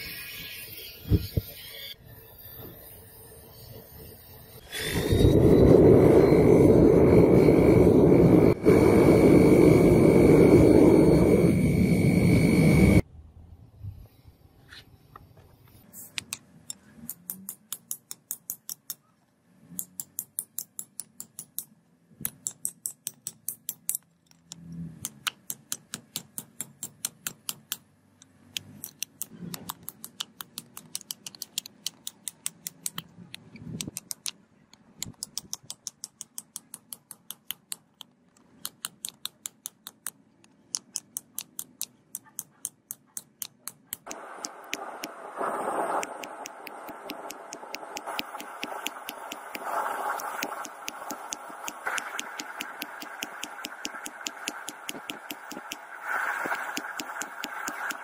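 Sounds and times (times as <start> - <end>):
hammer striking hot steel: 45.9 - 55.9.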